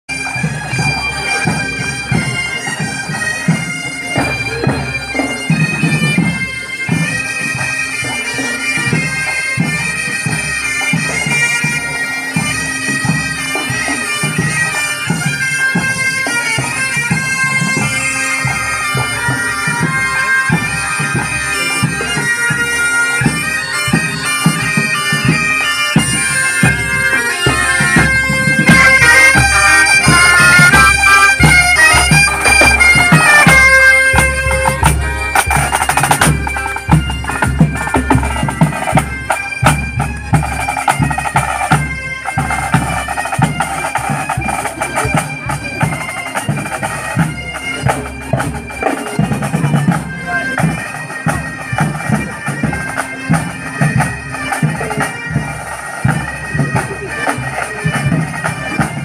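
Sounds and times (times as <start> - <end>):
bagpipe drones: 0.1 - 59.0
bombardes and bagpipes playing tune: 0.1 - 59.0
snare drums: 0.2 - 19.8, 23.2 - 59.0.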